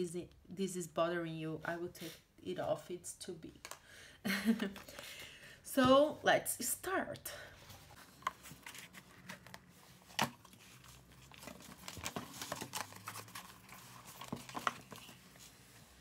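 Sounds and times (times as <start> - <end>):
paper rustling and scraping: 7.6 - 16.0.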